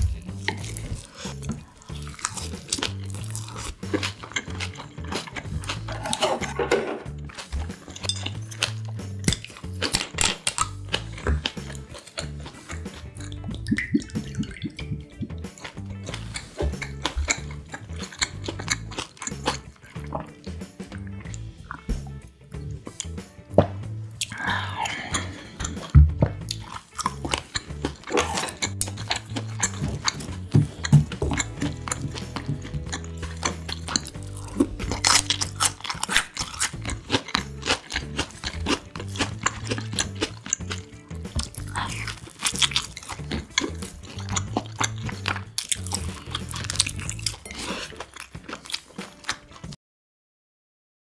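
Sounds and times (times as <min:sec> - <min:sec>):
close-up chewing: 0:00.0 - 0:23.2, 0:24.1 - 0:49.8
background music with low beat: 0:00.0 - 0:49.8
mouth clicks: 0:08.6 - 0:21.9.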